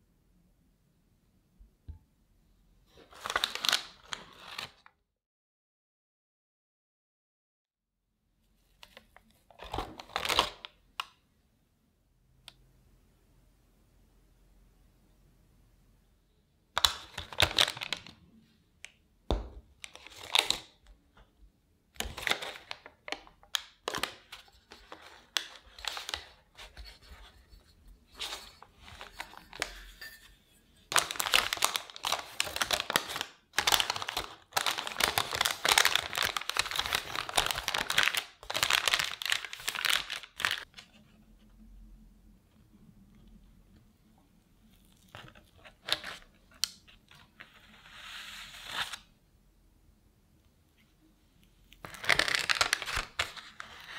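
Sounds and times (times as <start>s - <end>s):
baking paper crinkling: 3.0s - 4.9s, 16.8s - 18.2s, 19.8s - 20.8s, 22.0s - 41.0s, 51.8s - 53.9s.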